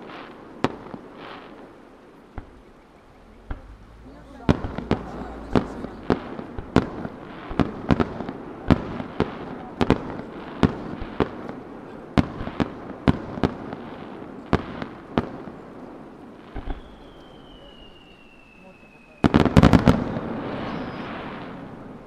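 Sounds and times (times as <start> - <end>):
fireworks bangs: 0.0 - 22.0
fireworks crackling: 0.0 - 22.0
high falling whistle: 16.7 - 19.4, 20.1 - 21.6.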